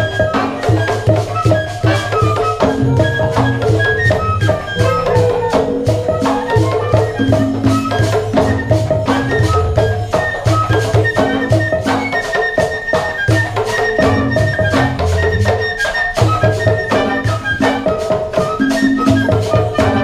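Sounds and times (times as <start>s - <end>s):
bassoon: 0.0s - 20.0s
drums driving rhythm: 0.0s - 20.0s
flute: 0.0s - 20.0s
saxophone: 0.0s - 20.0s
violins: 2.7s - 9.3s.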